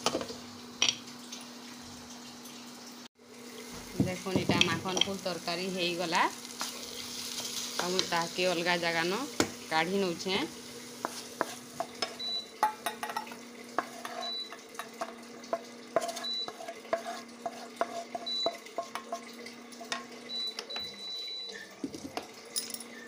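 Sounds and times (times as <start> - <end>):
spatula scraping frying pan: 10.6 - 20.1
pan knocking against bowl: 11.4 - 16.6, 17.8 - 19.2.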